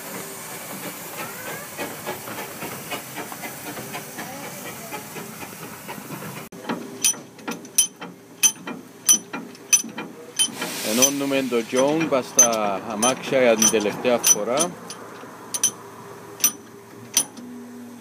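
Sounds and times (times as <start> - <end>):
steam locomotive hissing: 0.0 - 16.6
sharp metallic clanks: 6.6 - 15.8, 16.4 - 17.4.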